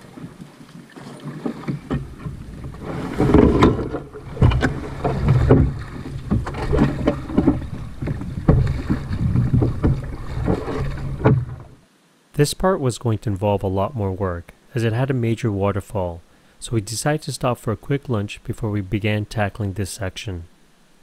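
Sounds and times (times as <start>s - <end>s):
canoe hull knocking on rocks: 0.1s - 11.8s.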